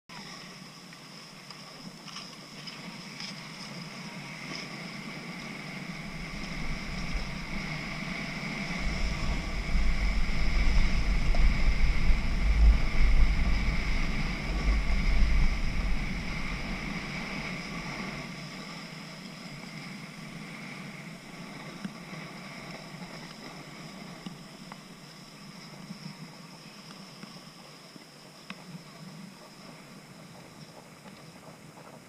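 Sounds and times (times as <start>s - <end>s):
skis sliding on snow: 0.2s - 32.0s
wind buffeting microphone: 3.7s - 26.2s.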